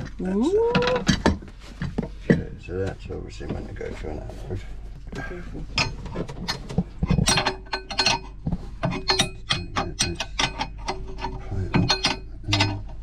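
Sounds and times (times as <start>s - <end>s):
spanner clicking on metal nuts: 7.0s - 13.0s.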